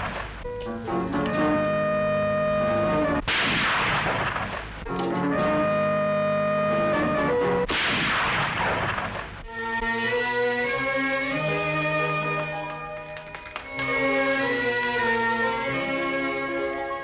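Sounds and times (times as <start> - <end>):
film music of held notes: 0.0 - 17.0
rifle shots: 3.2 - 5.0, 7.7 - 9.4.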